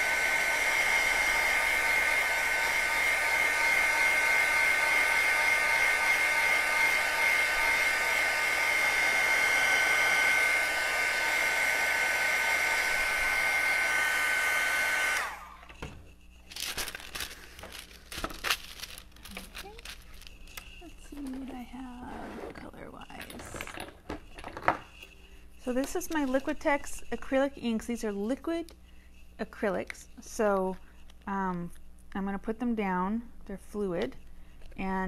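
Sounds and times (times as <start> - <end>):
heat tool blowing whir: 0.0 - 23.2, 24.1 - 28.7
wax paper rustling: 15.7 - 21.8.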